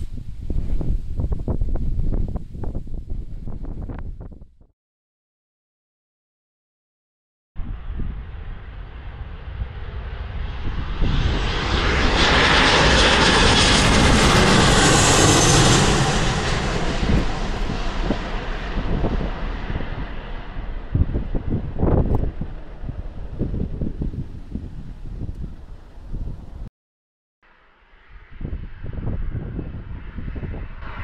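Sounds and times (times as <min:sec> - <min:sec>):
wind rumble on microphone: 0:00.0 - 0:04.7, 0:07.6 - 0:26.7, 0:27.9 - 0:31.0
aircraft engines passing: 0:07.6 - 0:26.7, 0:27.9 - 0:31.0.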